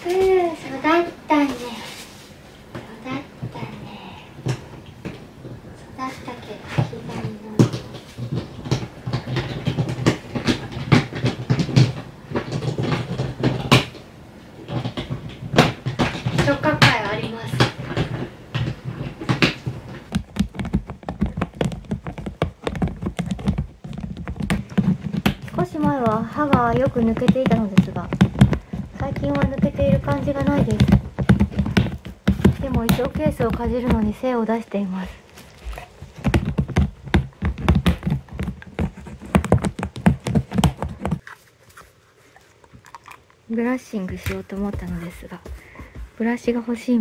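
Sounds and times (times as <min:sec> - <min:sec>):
teeth clacking on plastic: 0:06.8 - 0:34.2, 0:35.2 - 0:43.4.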